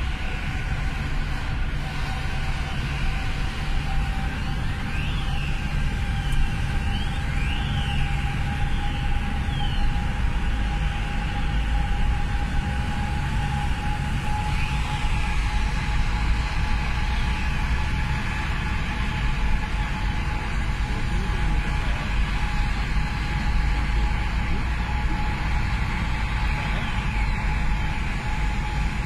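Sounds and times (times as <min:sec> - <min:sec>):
tyre and engine rumble: 0:00.0 - 0:29.0
faint whistle: 0:02.0 - 0:15.7.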